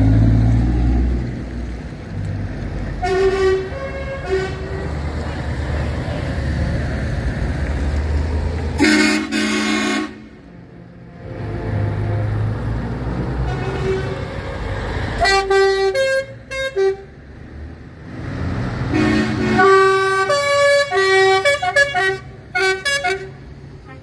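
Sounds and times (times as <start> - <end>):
diesel lorry engines pulling away: 0.0 - 24.0
truck horns blasting: 3.0 - 5.2, 8.8 - 17.2, 18.8 - 24.0.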